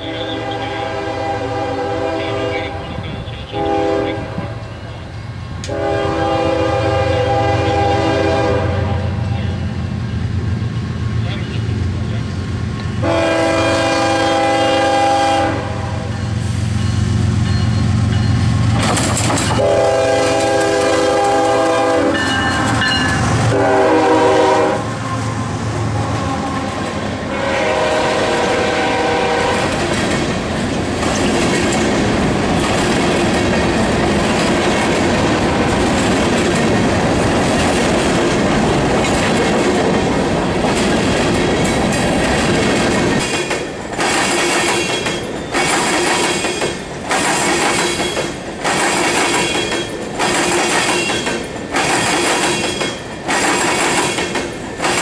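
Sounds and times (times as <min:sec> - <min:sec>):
locomotive air horn blasts: 0:00.0 - 0:04.6, 0:05.7 - 0:09.2, 0:13.0 - 0:16.1, 0:19.6 - 0:22.5, 0:23.5 - 0:29.7
train wheels clickety-clack: 0:16.7 - 0:23.8, 0:26.5 - 0:55.0.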